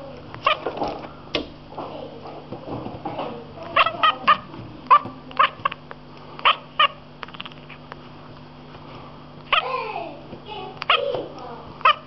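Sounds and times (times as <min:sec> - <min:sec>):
cat chirping and chattering: 0:03.6 - 0:05.8, 0:06.4 - 0:07.8, 0:11.8 - 0:12.0.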